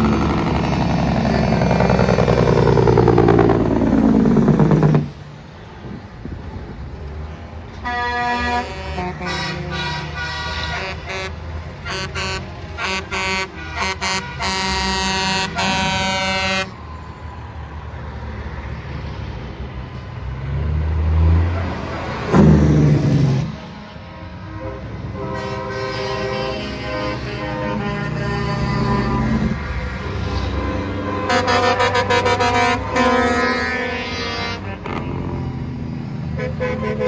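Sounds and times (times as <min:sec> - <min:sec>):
truck engines running: 0:00.0 - 0:37.0
truck air horn blasts: 0:07.8 - 0:16.8, 0:24.4 - 0:35.6, 0:36.3 - 0:37.0.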